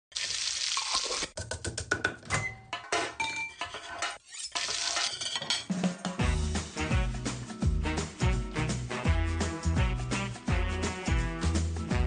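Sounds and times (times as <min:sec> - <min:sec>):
food sizzling: 0:00.1 - 0:01.3
utensils and pans clinking: 0:02.3 - 0:06.0
music with strong bass: 0:06.2 - 0:12.0.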